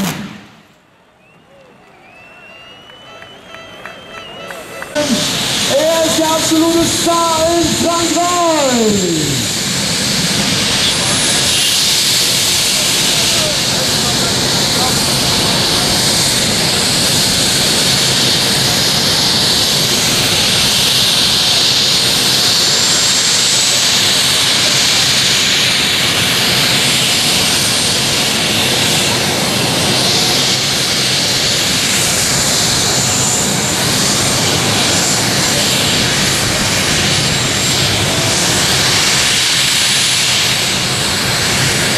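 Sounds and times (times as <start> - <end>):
faint high whine: 0.0 - 25.4
tractor engines idling loudly: 4.3 - 41.9.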